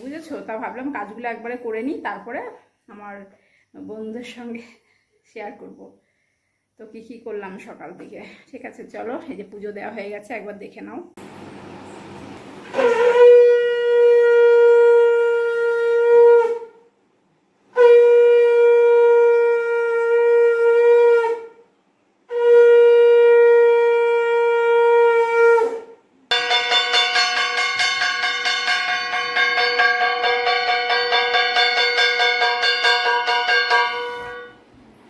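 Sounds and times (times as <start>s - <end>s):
conch shell blasts: 12.7s - 16.7s, 17.7s - 21.4s, 22.3s - 34.7s
hand bell ringing: 26.3s - 34.6s.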